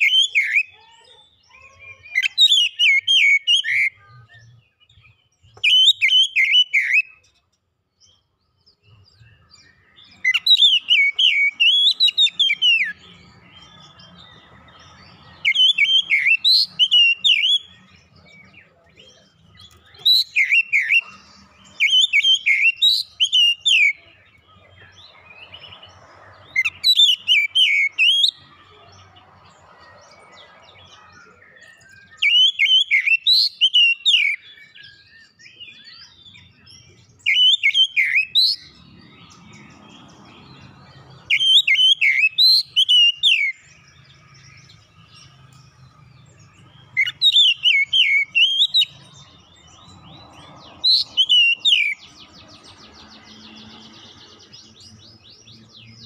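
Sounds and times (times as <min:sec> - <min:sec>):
bird singing whistled phrases: 0:00.0 - 0:07.3, 0:15.4 - 0:18.0, 0:18.7 - 0:24.2, 0:30.9 - 0:38.8, 0:41.3 - 0:43.8, 0:46.9 - 0:49.0.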